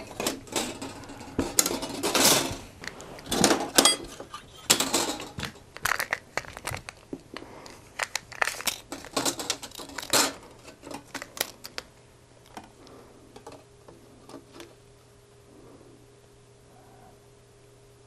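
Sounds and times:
sheet metal clicking and crinkling: 0.0 - 12.8.

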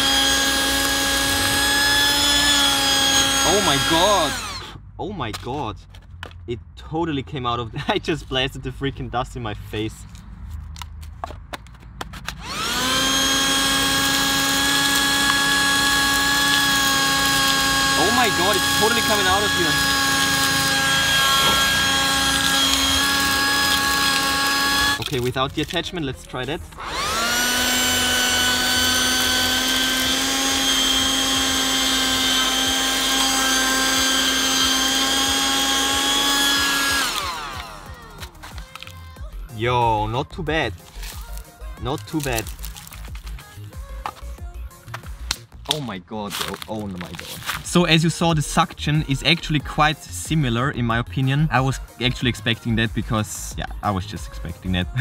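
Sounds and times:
vacuum motor high whine: 0.0 - 4.8, 12.4 - 25.1, 26.7 - 38.3.

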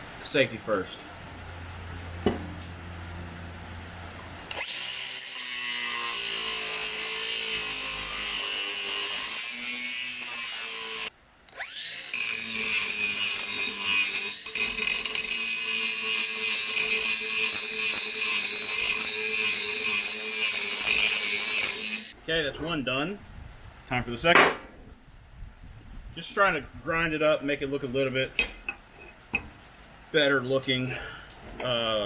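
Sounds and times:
angle grinder cutting steel: 4.5 - 22.2.

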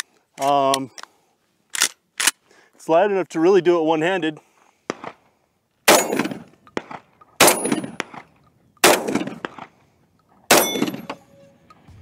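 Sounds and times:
shotgun shots: 4.9 - 5.2, 5.9 - 9.8, 10.5 - 11.2.

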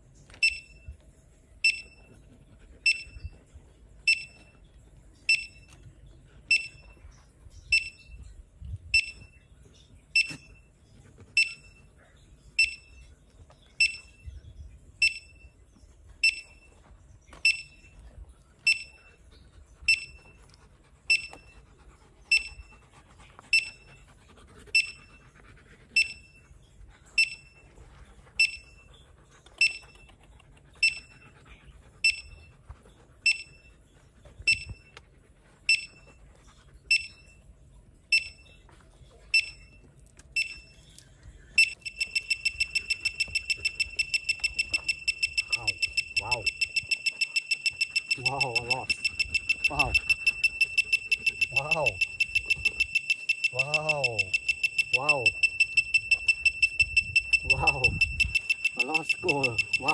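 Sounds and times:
metal detector beeping: 0.3 - 0.9, 1.6 - 2.2, 2.9 - 3.4, 4.1 - 4.6, 5.3 - 5.8, 6.5 - 7.0, 7.7 - 8.2, 9.0 - 9.4, 10.2 - 10.6, 11.4 - 11.8, 12.6 - 13.0, 13.8 - 14.3, 15.0 - 15.6, 16.2 - 16.8, 17.4 - 18.0, 18.7 - 19.0, 19.9 - 20.4, 21.1 - 21.6, 22.3 - 22.7, 23.6 - 23.9, 24.8 - 25.1, 26.0 - 26.4, 27.2 - 27.6, 28.4 - 28.8, 29.6 - 30.1, 30.8 - 31.2, 32.0 - 32.5, 33.3 - 33.7, 34.5 - 35.0, 35.7 - 36.1, 36.9 - 37.4, 38.1 - 38.6, 39.4 - 39.8, 40.4 - 40.8, 41.6 - 59.9.

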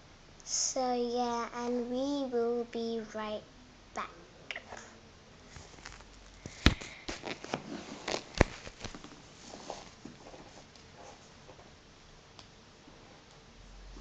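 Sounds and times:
handling noise on recorder: 5.5 - 11.7.

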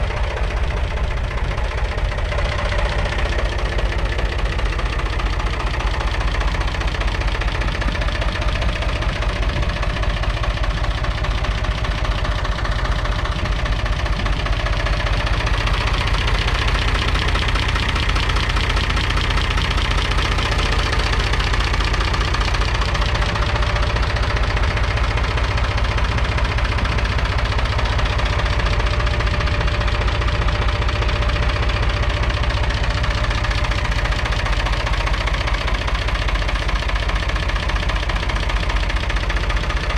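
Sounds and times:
diesel engine idling: 0.0 - 39.9.

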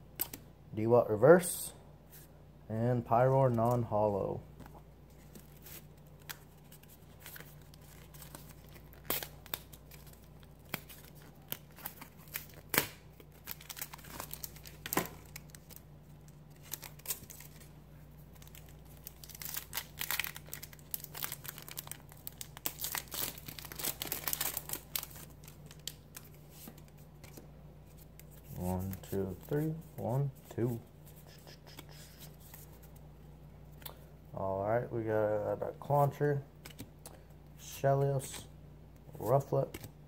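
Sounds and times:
low steady hum: 0.0 - 40.0.

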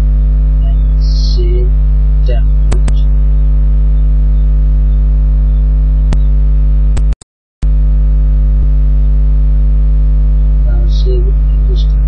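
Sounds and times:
electrical mains hum: 0.0 - 12.0
sharp clicks: 2.7 - 3.0, 6.1 - 6.3, 7.0 - 7.2.

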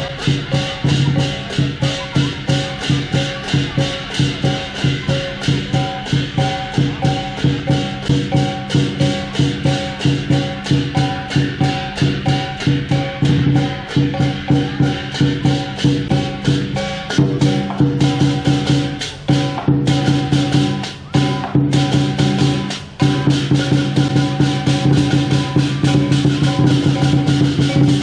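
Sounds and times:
big drum beating: 0.0 - 28.0
cymbals crashing: 0.0 - 28.0
gong striking: 5.2 - 28.0.

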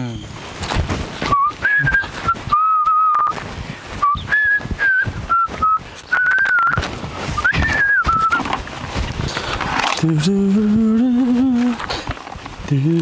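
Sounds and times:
person whistling a tune: 1.3 - 3.4, 4.0 - 8.5.

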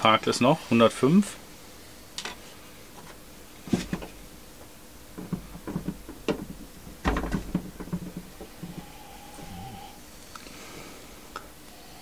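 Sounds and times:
wooden knocks and clunks of cask: 3.0 - 9.8.

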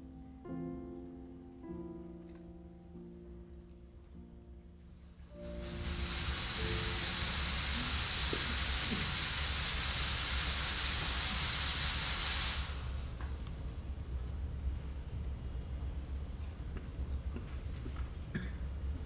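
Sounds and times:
smoke machine hissing: 5.3 - 13.4
low steady hum: 12.7 - 19.0.

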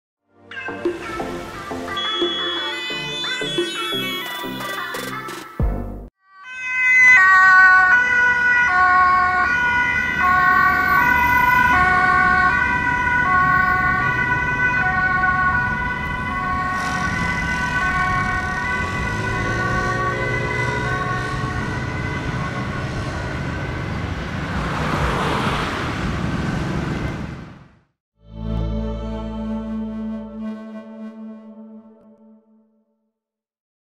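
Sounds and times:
two-tone ambulance siren: 0.6 - 5.1, 6.2 - 25.0
road noise: 6.7 - 27.9.

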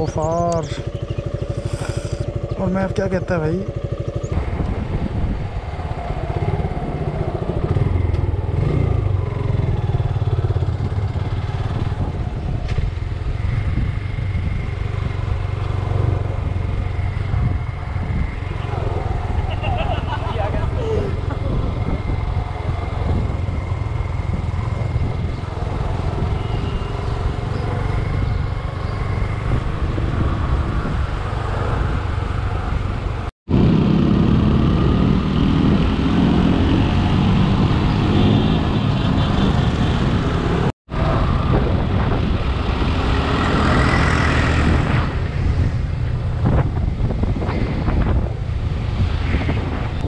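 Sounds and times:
motorcycle engine running: 0.0 - 36.7.

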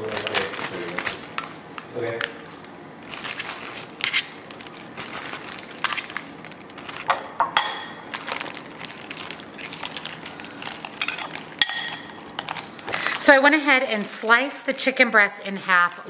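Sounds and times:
plastic bag crinkling: 0.0 - 7.2, 8.0 - 14.8
spoon clinking against bowl: 11.0 - 12.2.

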